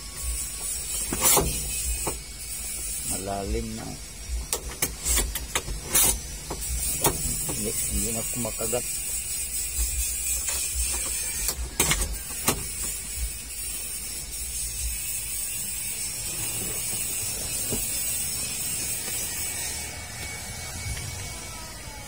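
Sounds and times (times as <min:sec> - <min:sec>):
handbrake lever clicks: 0:04.5 - 0:07.6, 0:10.4 - 0:12.9.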